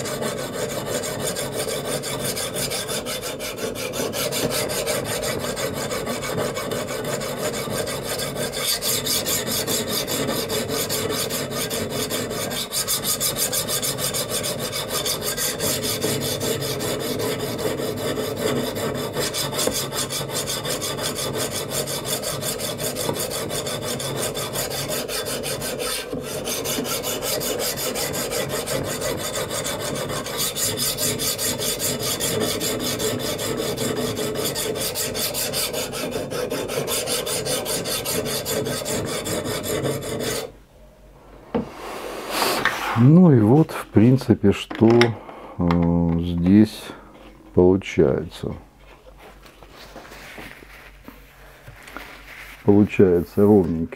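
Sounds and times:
sharpening stone grinding knife: 0.0s - 40.5s.

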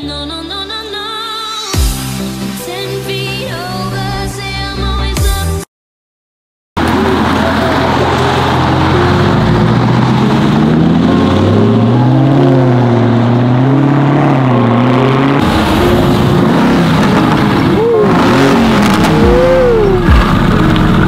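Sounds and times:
car engine revving: 6.8s - 21.0s.

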